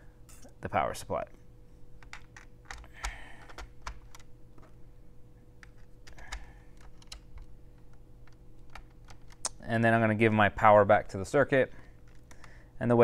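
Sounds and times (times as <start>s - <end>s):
wires clicking into plastic board: 5.6s - 9.6s, 11.8s - 12.6s
rustling of wires: 11.7s - 12.7s.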